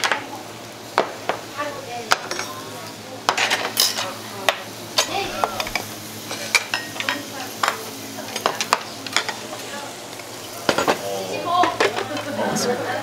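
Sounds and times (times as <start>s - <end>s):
meat sizzling on grill: 0.0s - 13.0s
metal tongs and lids clinking: 3.3s - 4.1s, 5.0s - 11.0s.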